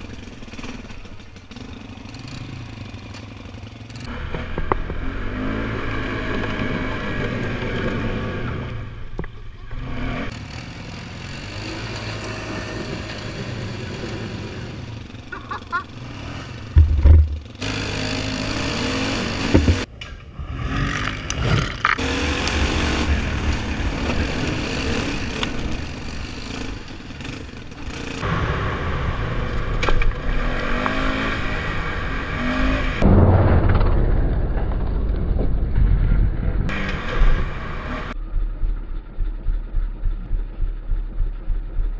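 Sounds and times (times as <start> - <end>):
atv engine revving: 0.0 - 33.0
knocks and scrapes from riding: 16.8 - 17.7, 19.0 - 22.0.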